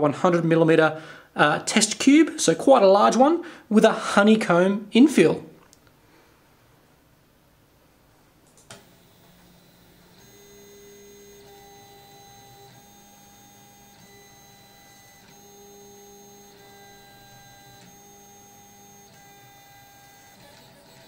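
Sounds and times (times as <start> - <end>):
stepper motors whining: 8.6 - 21.0.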